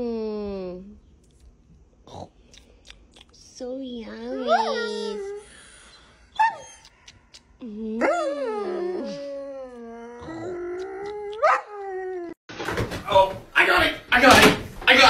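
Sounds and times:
dog howling and yelping: 8.0 - 12.4.

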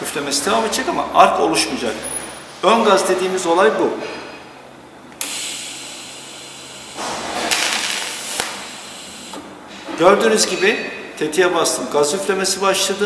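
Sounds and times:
shielding gas hissing: 5.2 - 9.4
welding arc hissing: 5.2 - 9.4.

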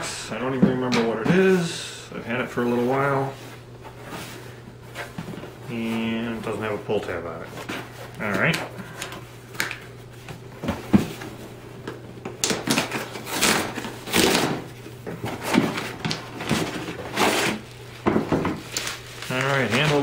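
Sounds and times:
cardboard ripping: 12.4 - 18.0, 18.6 - 20.0.

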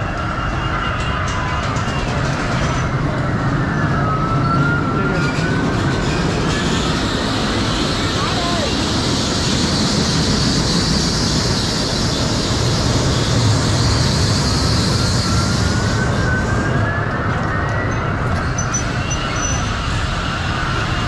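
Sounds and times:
ride rushing noise: 1.6 - 17.4.

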